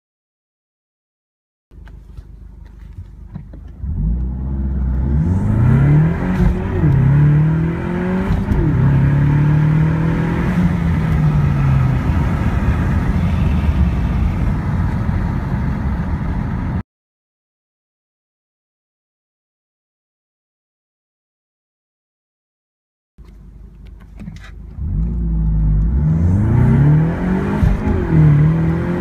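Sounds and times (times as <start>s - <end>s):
road rumble: 1.7s - 16.8s, 23.2s - 29.0s
car engine revving through gears: 3.3s - 16.8s, 24.2s - 29.0s.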